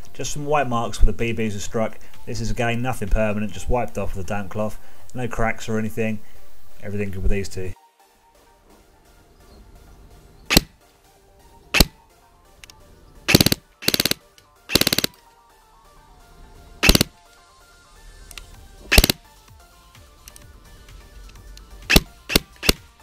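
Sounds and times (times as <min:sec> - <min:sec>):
faint background music: 0:00.0 - 0:23.0
airsoft gun shots: 0:10.5 - 0:10.8, 0:11.7 - 0:12.0, 0:13.3 - 0:15.2, 0:16.8 - 0:17.1, 0:18.9 - 0:19.2, 0:21.9 - 0:22.9.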